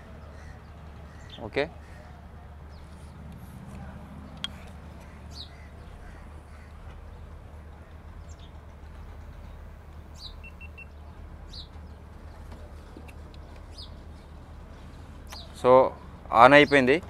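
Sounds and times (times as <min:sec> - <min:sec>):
birds chirping: 0:00.0 - 0:17.0
camera beeps: 0:10.4 - 0:10.9.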